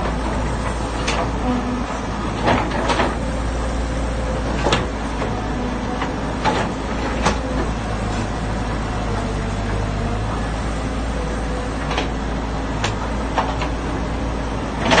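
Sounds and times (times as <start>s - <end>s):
excavator bucket clanking: 0.0s - 3.6s, 4.4s - 8.4s, 11.5s - 14.0s, 14.7s - 15.0s
excavator diesel engine running: 0.0s - 15.0s.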